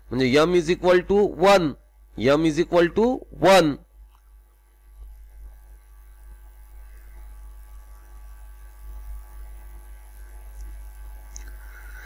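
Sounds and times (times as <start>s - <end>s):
electrical mains hum: 0.0s - 12.0s
faint hiss: 10.5s - 12.0s.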